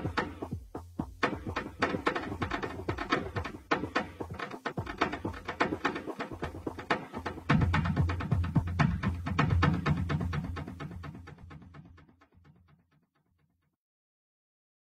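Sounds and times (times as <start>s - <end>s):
percussive electronic clicks and taps: 0.0s - 12.0s.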